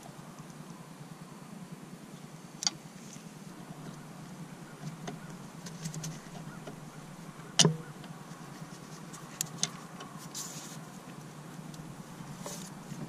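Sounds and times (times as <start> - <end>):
steady low hum: 0.0 - 13.0
small ticks: 4.8 - 13.0.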